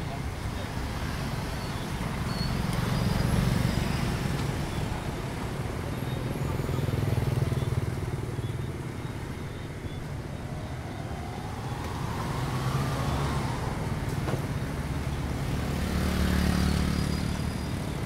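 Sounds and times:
motorbikes and scooters droning: 0.1s - 18.0s
engine speeding up: 10.4s - 15.0s.

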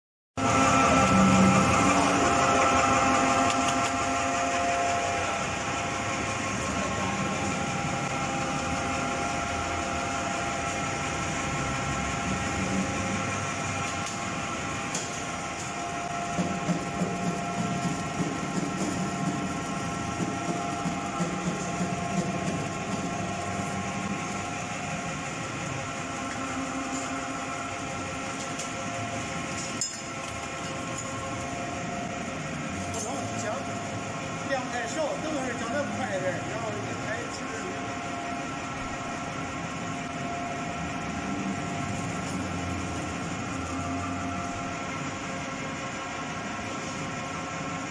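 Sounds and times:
ginger crusher machine grinding: 0.4s - 37.9s.

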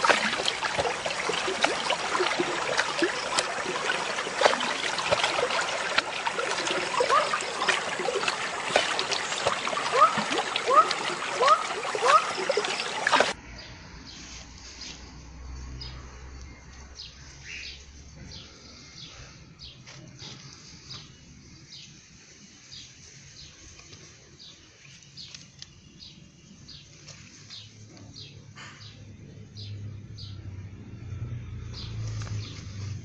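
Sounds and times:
small birds chirping: 0.0s - 13.7s.

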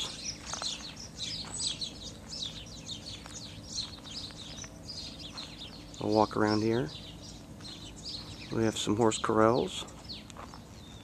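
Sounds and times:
faint steady hum: 0.0s - 11.0s
small birds chirping: 0.0s - 11.0s.

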